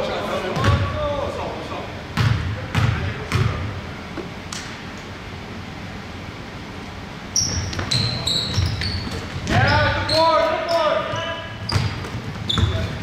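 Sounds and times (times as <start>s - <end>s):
basketball bouncing on wooden floor: 2.2s - 3.6s, 11.6s - 13.0s
sneaker squeaks on court: 7.4s - 13.0s.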